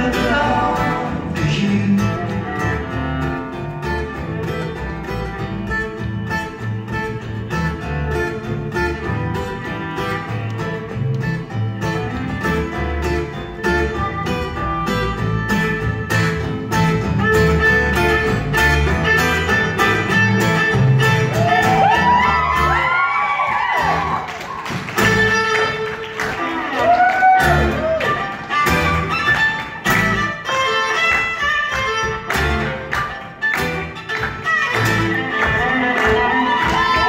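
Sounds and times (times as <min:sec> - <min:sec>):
upright double bass: 0:00.0 - 0:23.0, 0:23.6 - 0:37.0
acoustic guitars strumming: 0:00.0 - 0:37.0
violin melody: 0:28.2 - 0:37.0.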